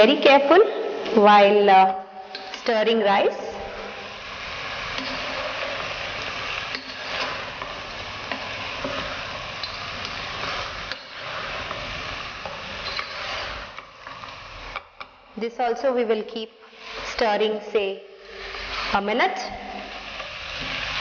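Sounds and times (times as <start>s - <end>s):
rice sizzling and scraping: 3.6s - 15.1s, 16.7s - 17.3s, 18.2s - 21.0s.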